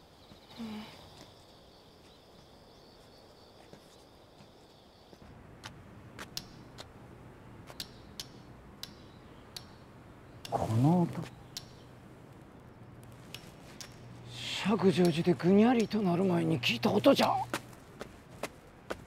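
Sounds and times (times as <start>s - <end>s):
insects trilling: 0.0s - 5.2s.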